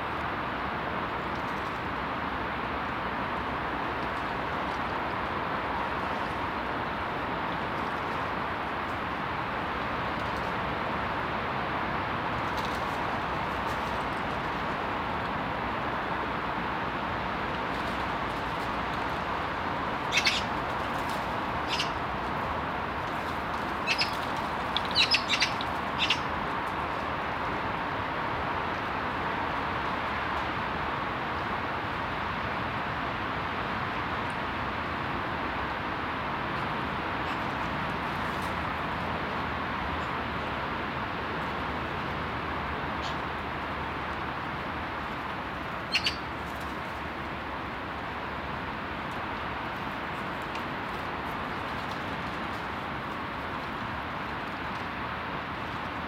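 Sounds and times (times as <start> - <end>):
high bird chirps: 20.1 - 20.5, 21.6 - 22.0, 23.8 - 24.2, 24.8 - 26.3, 45.9 - 46.2.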